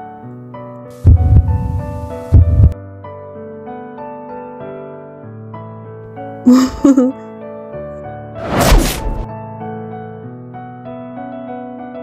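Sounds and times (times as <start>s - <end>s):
piano background music: 0.0s - 8.4s, 9.2s - 12.0s
slam sound effect: 8.4s - 9.3s.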